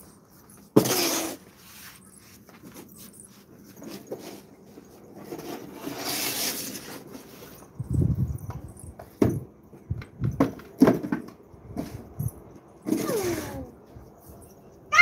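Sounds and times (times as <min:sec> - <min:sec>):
cardboard scraping on tiled floor: 0:00.8 - 0:07.7.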